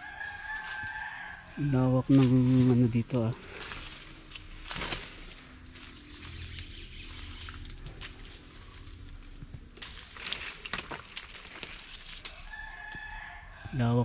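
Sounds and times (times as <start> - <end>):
leaves crunching underfoot: 0.0 - 13.7
faint outdoor background: 0.0 - 14.0
twigs snapping: 2.1 - 2.8, 3.6 - 6.8, 7.4 - 13.4.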